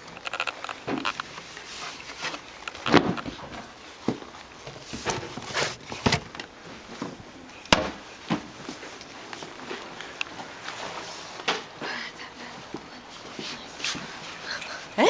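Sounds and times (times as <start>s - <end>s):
footsteps: 12.5s - 14.7s.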